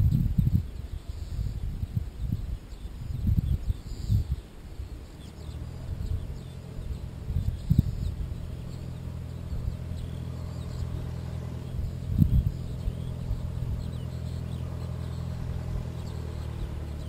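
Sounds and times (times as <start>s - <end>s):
faint bird chirps: 0.0s - 17.0s
light aircraft engine drone: 0.0s - 17.0s
low rumble: 5.1s - 17.0s.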